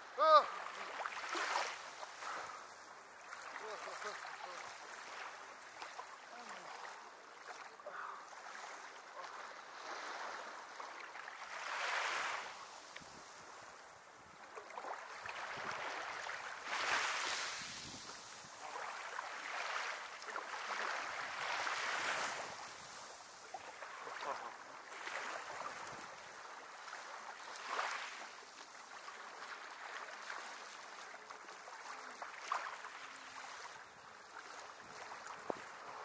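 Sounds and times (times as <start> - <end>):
small waves washing on sand: 0.0 - 36.0.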